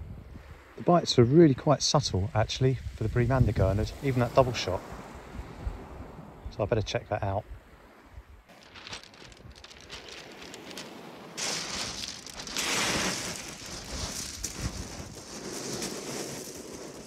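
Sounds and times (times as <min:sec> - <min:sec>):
faint crunches: 0:08.5 - 0:17.0
waves over shingle beach: 0:08.5 - 0:17.0.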